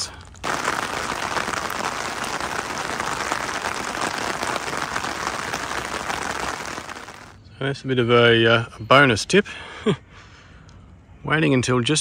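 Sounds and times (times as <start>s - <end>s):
steady rain falling: 0.0s - 7.4s.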